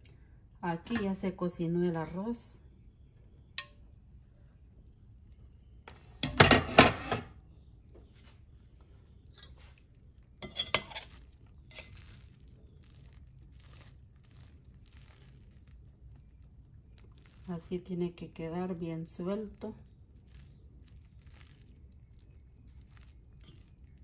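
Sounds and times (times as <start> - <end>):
spoon scraping through rice: 9.3 - 16.4
metal spoon clattering against pot: 10.4 - 11.1.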